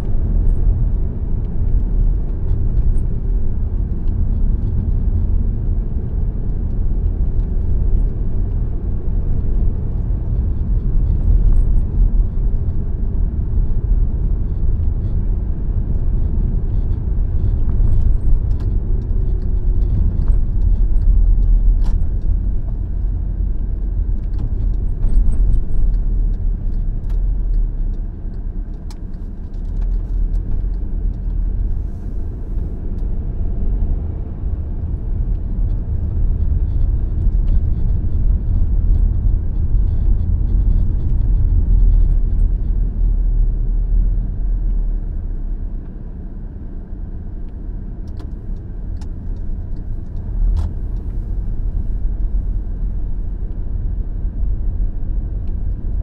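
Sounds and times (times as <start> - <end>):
car driving rumble: 0.0 - 56.0
light ticks and rattles: 15.8 - 33.1.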